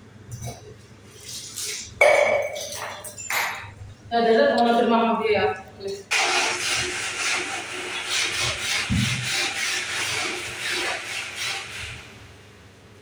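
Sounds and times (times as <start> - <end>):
wet brush scrubbing steel rack: 6.1 - 12.2.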